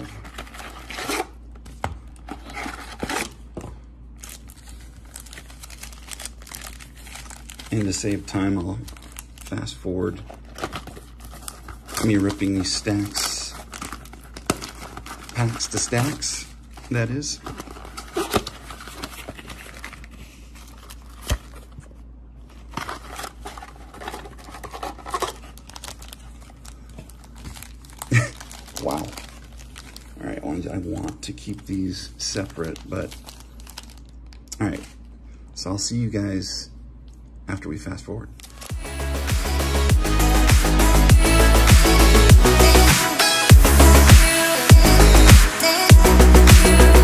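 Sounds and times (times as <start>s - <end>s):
foil packs crinkling: 0.0s - 3.5s, 4.1s - 35.0s, 38.4s - 38.8s.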